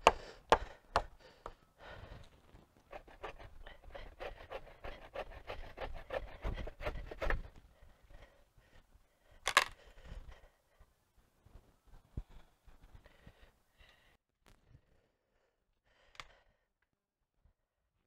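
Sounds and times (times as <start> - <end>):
wood scraping and rubbing: 2.8 - 7.5.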